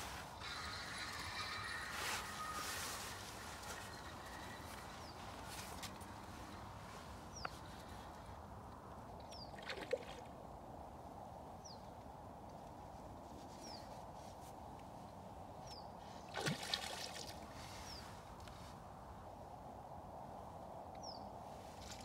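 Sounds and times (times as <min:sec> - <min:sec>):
river water trickling: 0:09.1 - 0:10.5, 0:16.3 - 0:18.0, 0:21.7 - 0:22.0.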